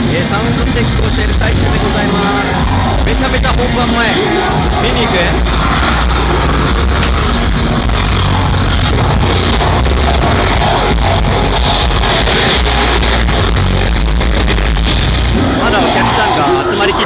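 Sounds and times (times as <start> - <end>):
loud rock music: 0.0 - 17.0.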